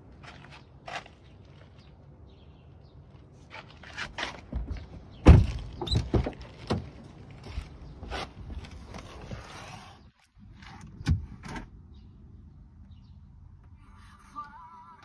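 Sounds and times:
car door shutting: 10.6 - 11.8.

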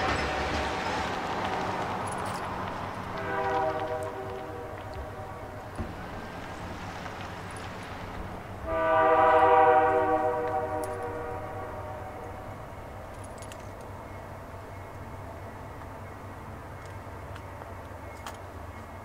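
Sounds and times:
locomotive air horn blast: 0.0 - 0.9, 3.1 - 5.7, 8.6 - 12.6
train engines rumbling: 0.0 - 19.0.

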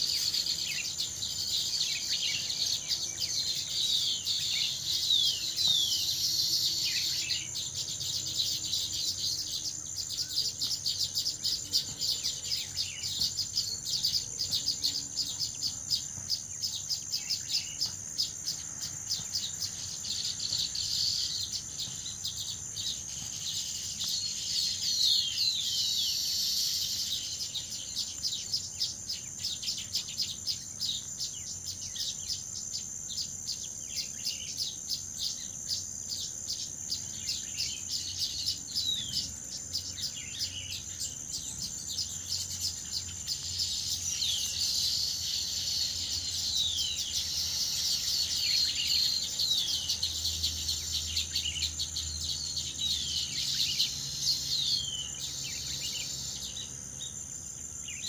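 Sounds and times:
birds chattering with high chirps: 0.0 - 58.0
high insect drone: 0.0 - 58.0.

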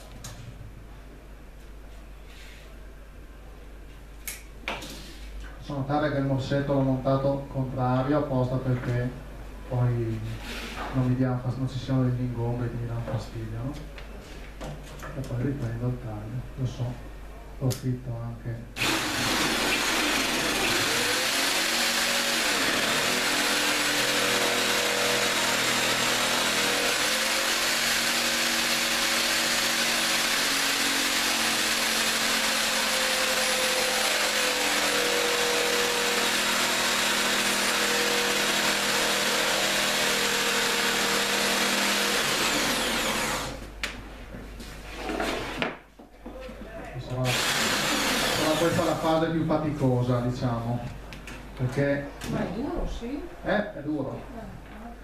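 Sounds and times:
electric jigsaw cutting worktop: 18.8 - 43.6, 47.2 - 49.2.

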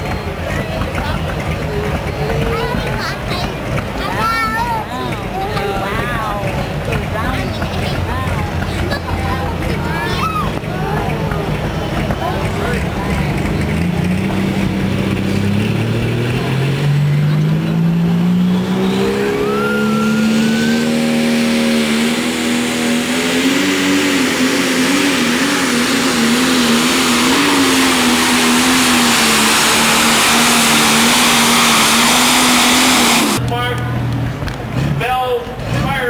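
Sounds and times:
diesel tractor engine revving: 0.0 - 36.0
rushing noise: 13.3 - 33.4.

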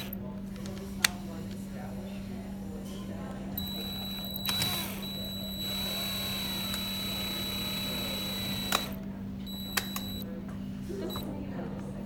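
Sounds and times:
cordless drill running: 3.6 - 10.2
drill stopping click: 3.6 - 10.2.

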